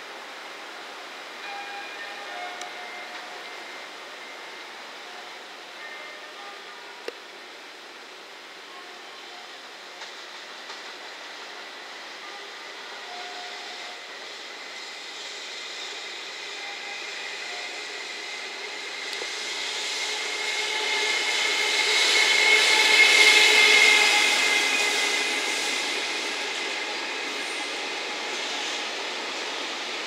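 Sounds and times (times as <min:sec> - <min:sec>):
train passing: 0:00.0 - 0:30.0
locomotive high whine: 0:09.5 - 0:30.0.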